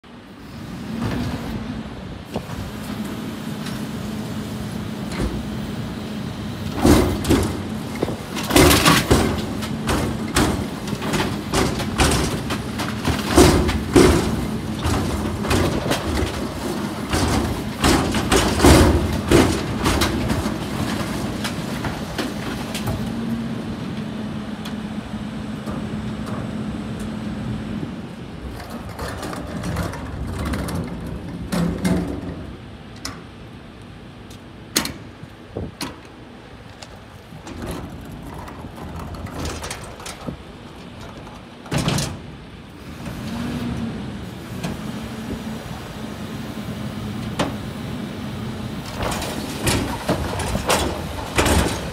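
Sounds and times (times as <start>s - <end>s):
truck engine and hydraulics hum: 0.0s - 51.9s
bin banging and clattering: 6.7s - 23.2s, 28.5s - 32.6s, 37.4s - 42.4s, 48.8s - 51.9s.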